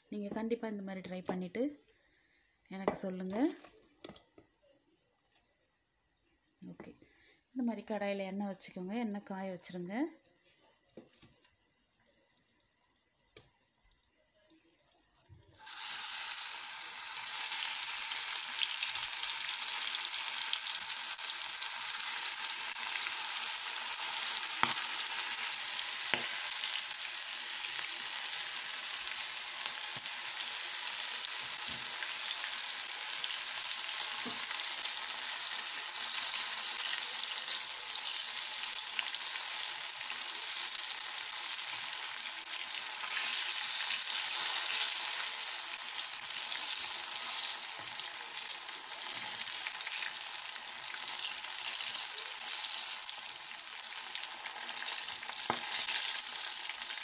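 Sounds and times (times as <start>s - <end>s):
vegetables sizzling in hot oil: 15.5s - 57.0s.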